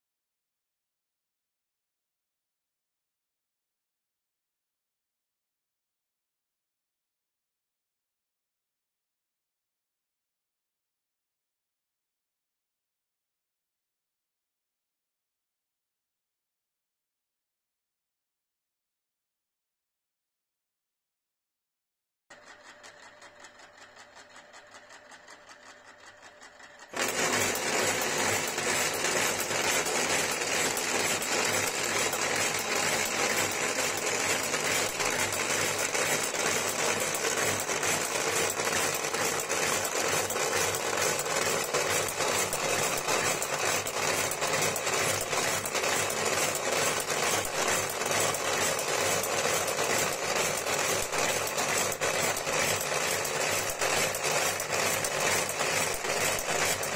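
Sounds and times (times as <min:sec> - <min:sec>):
cigarette filling machine running: 0:22.3 - 0:56.9.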